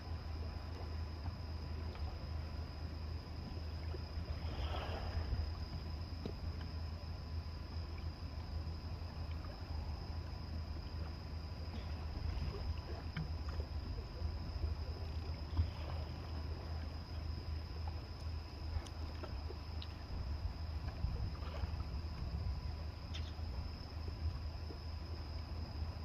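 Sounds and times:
faint high whine: 0:00.0 - 0:26.0
small ticks: 0:18.1 - 0:20.0, 0:23.1 - 0:23.4.

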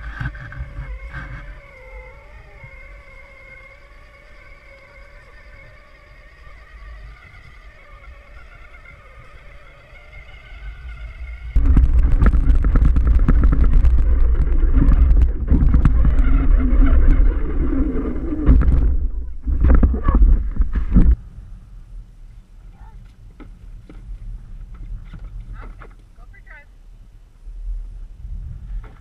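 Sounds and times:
toy quad rumbling: 0:00.0 - 0:21.2
rattles and knocks from bumps: 0:11.6 - 0:17.3, 0:18.3 - 0:21.2.

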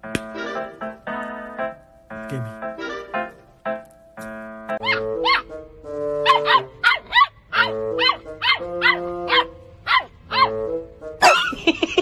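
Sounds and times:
background music: 0:00.0 - 0:12.0
puppy yapping: 0:04.8 - 0:05.5, 0:06.2 - 0:10.6.

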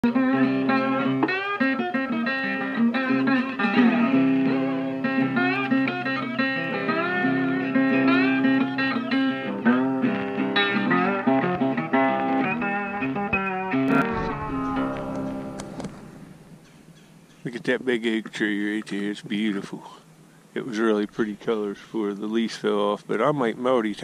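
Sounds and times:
guitar music with sliding notes: 0:00.0 - 0:16.8.

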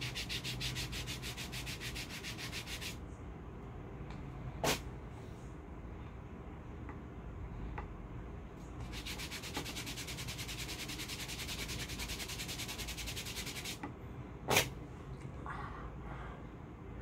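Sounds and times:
hand rubbing paper strip: 0:00.0 - 0:03.0, 0:08.8 - 0:13.8.

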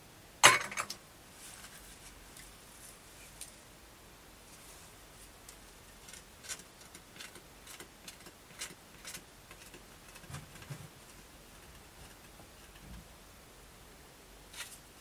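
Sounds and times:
wooden board clicks and scrapes: 0:06.0 - 0:13.0.

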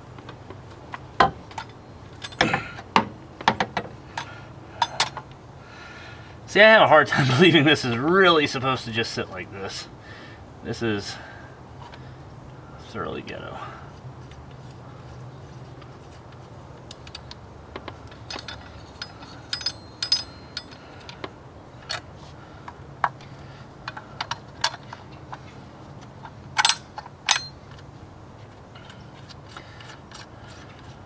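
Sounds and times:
metallic clicks and clinks: 0:18.0 - 0:21.2, 0:26.2 - 0:27.8.

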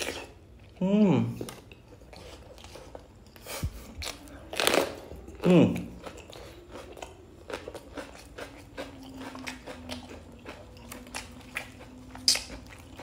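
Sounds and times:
crunchy chewing of pepper: 0:00.0 - 0:13.0.

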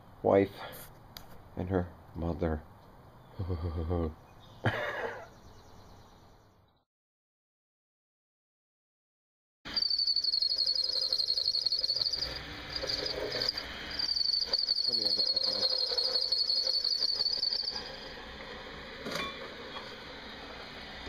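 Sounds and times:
cricket chirring: 0:09.7 - 0:18.3.

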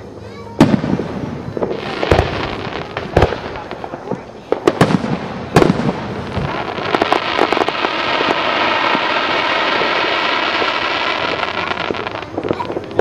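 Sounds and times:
firework bursting with a bang: 0:00.5 - 0:13.0
crackling of falling sparks: 0:00.6 - 0:13.0.

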